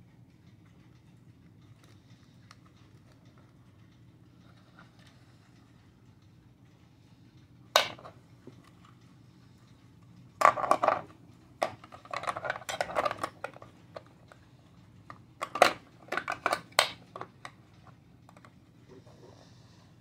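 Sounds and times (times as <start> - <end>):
plastic clock case clicks and rattles: 10.4 - 14.1, 15.1 - 18.6.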